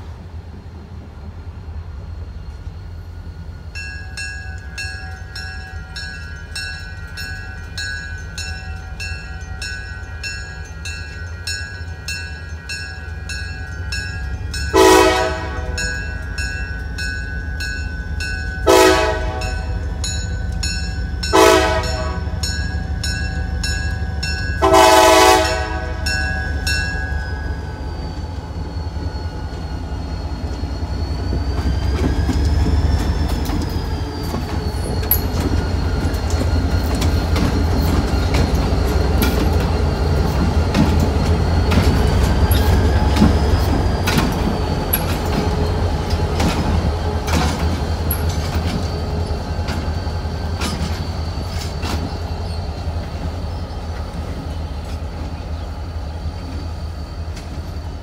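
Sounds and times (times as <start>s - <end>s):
locomotive rumble: 0.0s - 58.0s
crossing signal bell ringing: 3.5s - 32.8s, 33.6s - 46.4s
locomotive horn blasts: 14.7s - 16.0s, 18.6s - 19.8s, 21.3s - 22.5s, 24.6s - 26.2s
thin wavering squeal: 25.9s - 58.0s.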